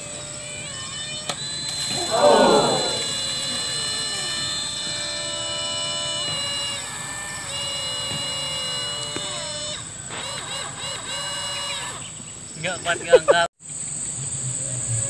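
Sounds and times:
short vocal sounds: 1.9 - 3.2
small electric motor whining: 3.0 - 12.1.

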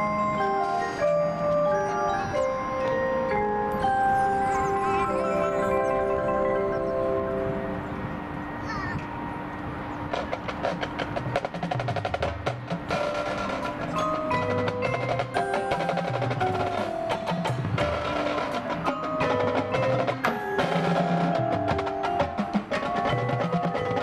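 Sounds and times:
mallet keyboards ringing notes: 0.0 - 10.8, 11.4 - 24.0
marching drums and stick hits: 10.1 - 24.0.

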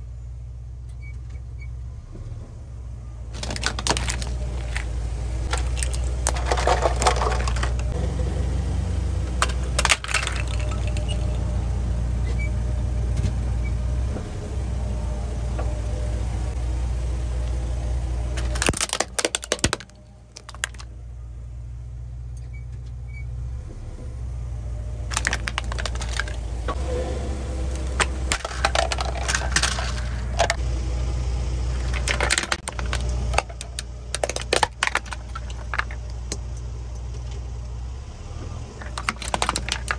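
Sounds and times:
car engine idling: 1.9 - 22.4, 23.5 - 39.9
plastic toys cracking under tyre: 3.3 - 8.0, 9.3 - 11.4, 18.3 - 20.9, 25.1 - 26.5, 27.7 - 30.6, 31.7 - 36.5, 38.8 - 39.9.

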